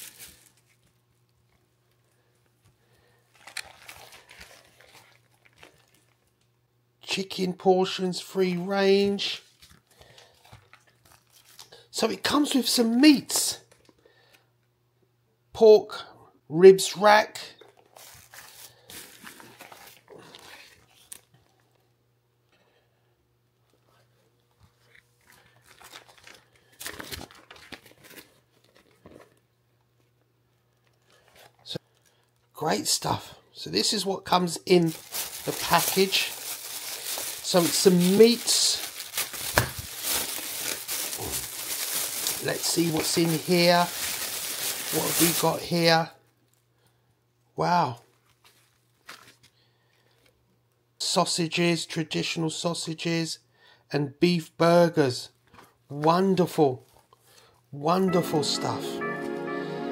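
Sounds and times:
plastic packaging crinkling: 0:00.0 - 0:01.1, 0:03.0 - 0:06.5, 0:07.8 - 0:11.9, 0:17.6 - 0:21.6, 0:24.7 - 0:29.5, 0:34.3 - 0:46.6, 0:48.1 - 0:49.6.

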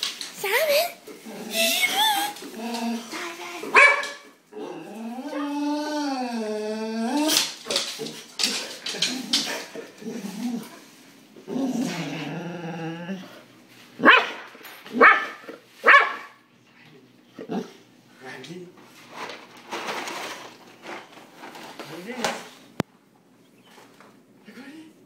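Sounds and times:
dog moaning: 0:00.8 - 0:03.8, 0:04.4 - 0:13.5
dog yipping: 0:03.7 - 0:04.2, 0:15.0 - 0:16.4
dog barking: 0:03.7 - 0:04.3, 0:14.0 - 0:16.4.

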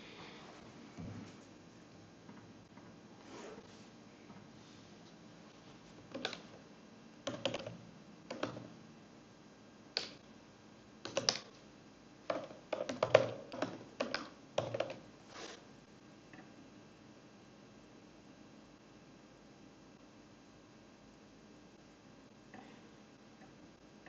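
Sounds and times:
computer keyboard typing: 0:06.1 - 0:06.5, 0:07.2 - 0:08.7, 0:11.0 - 0:11.5, 0:12.3 - 0:15.0.

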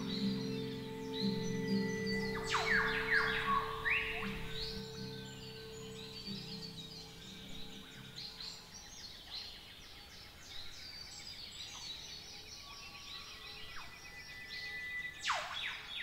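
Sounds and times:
fast even bird trill: 0:00.0 - 0:07.8
birds chirping and whistling: 0:00.0 - 0:09.4, 0:13.1 - 0:16.0.

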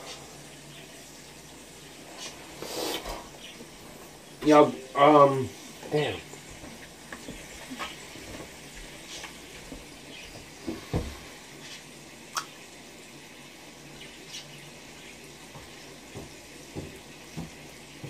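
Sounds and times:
small crackles and ticks: 0:06.3 - 0:10.6.

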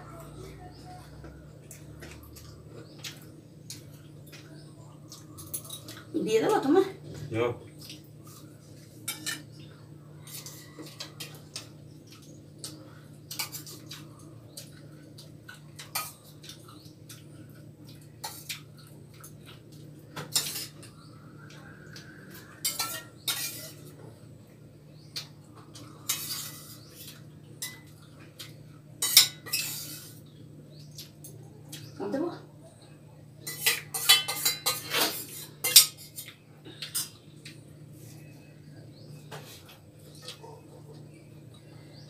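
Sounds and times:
metal spoon clinking on steel plates: 0:05.1 - 0:06.1, 0:09.0 - 0:09.6, 0:15.8 - 0:16.2, 0:20.2 - 0:20.9, 0:22.6 - 0:24.0, 0:26.1 - 0:28.0, 0:29.0 - 0:30.2, 0:33.4 - 0:37.2.

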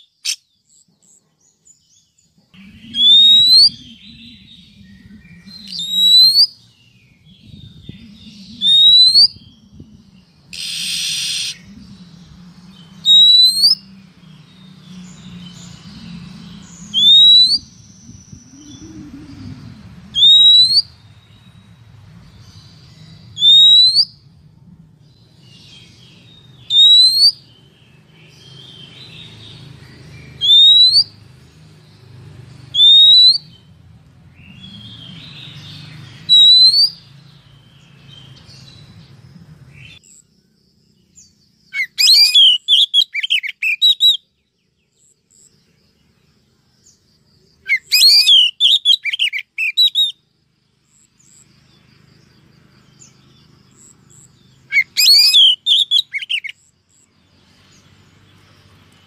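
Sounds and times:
bird rising whistles: 0:02.7 - 0:06.6, 0:07.9 - 0:09.8, 0:10.5 - 0:12.2, 0:12.8 - 0:13.9, 0:16.8 - 0:21.0, 0:23.4 - 0:24.2, 0:26.6 - 0:27.4, 0:30.4 - 0:31.1, 0:32.7 - 0:33.7, 0:36.3 - 0:37.0, 0:41.8 - 0:44.2, 0:47.7 - 0:50.2, 0:54.7 - 0:56.5.

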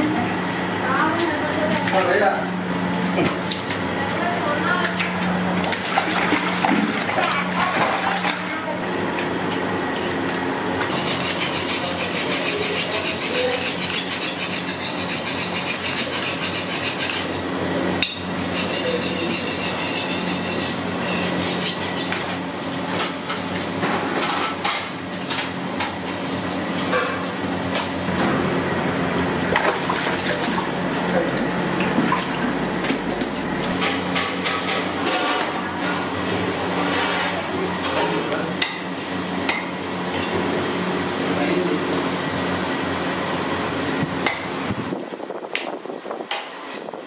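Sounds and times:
knife cutting fish on wooden block: 0:10.8 - 0:17.3, 0:18.6 - 0:22.3.

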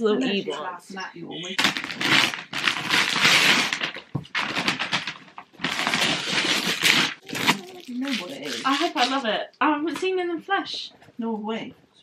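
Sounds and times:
paper crinkling and rustling: 0:01.6 - 0:09.3.

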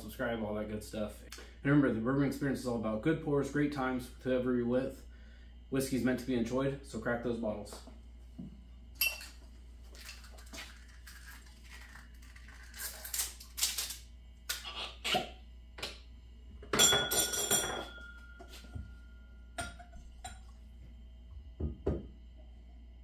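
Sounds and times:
faint glass ring: 0:09.0 - 0:09.3, 0:16.8 - 0:20.4
glassware clinking: 0:09.0 - 0:09.4, 0:16.7 - 0:18.6, 0:19.6 - 0:20.5
glassy clatter: 0:09.0 - 0:09.4.

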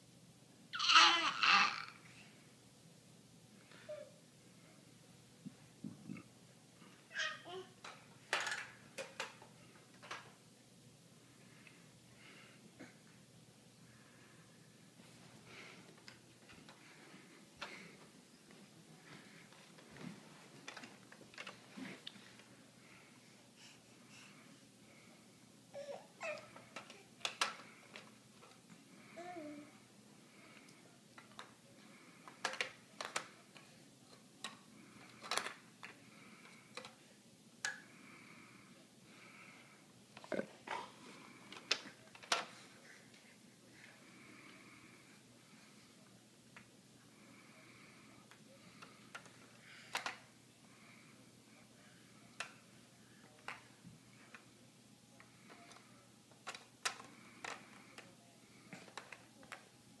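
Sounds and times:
plastic toy clicks and knocks: 0:08.3 - 0:09.4
plastic toys clicking: 0:08.3 - 0:09.4, 0:26.8 - 0:28.1, 0:32.2 - 0:33.3, 0:34.4 - 0:35.6, 0:49.1 - 0:50.2, 0:56.4 - 0:58.1, 0:58.8 - 0:59.6.

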